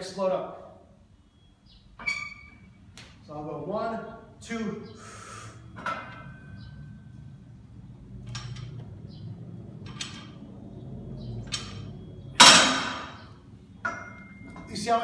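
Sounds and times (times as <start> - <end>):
hissing breaths: 4.9 - 5.8
barbell clanging into hooks: 5.8 - 6.7, 11.4 - 13.2, 13.8 - 14.7.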